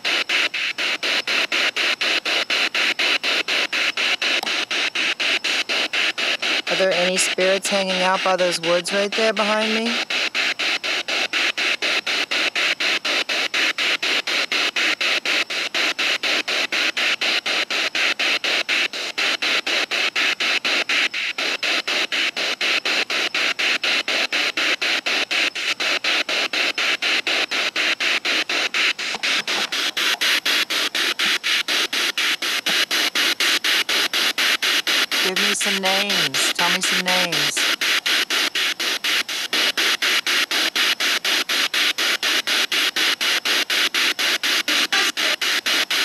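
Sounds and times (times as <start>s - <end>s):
radio static chopped by sweep: 26.8s - 46.0s.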